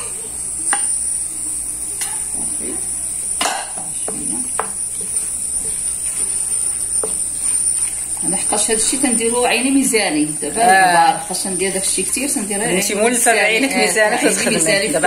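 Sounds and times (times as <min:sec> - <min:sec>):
steady high hiss: 0:00.0 - 0:15.0
wooden spoon scraping metal pot: 0:03.8 - 0:09.7.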